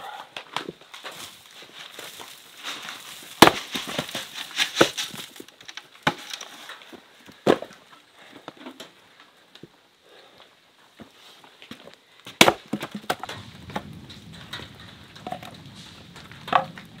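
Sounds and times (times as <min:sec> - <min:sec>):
clatter of wood: 0:00.4 - 0:09.0, 0:11.7 - 0:17.0
axe splitting wood: 0:03.2 - 0:06.5, 0:07.4 - 0:07.8, 0:12.3 - 0:13.4
wooden knocks and thuds: 0:03.4 - 0:05.3, 0:12.3 - 0:17.0.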